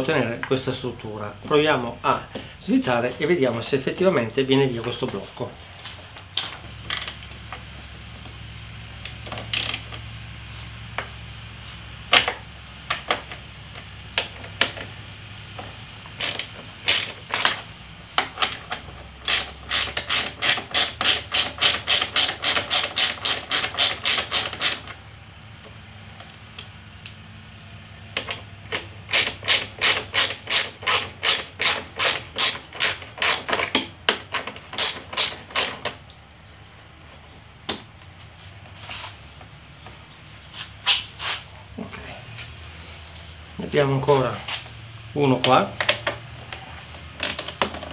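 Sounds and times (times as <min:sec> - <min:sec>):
ratchet wrench clicking: 0:06.9 - 0:07.3, 0:09.0 - 0:10.0, 0:16.2 - 0:17.6, 0:19.2 - 0:24.9, 0:29.1 - 0:33.6, 0:34.8 - 0:35.9, 0:47.2 - 0:47.5.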